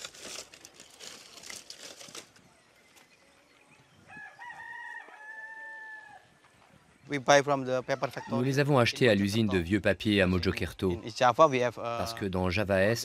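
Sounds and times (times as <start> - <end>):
rooster crowing: 4.1 - 6.4, 7.9 - 8.8.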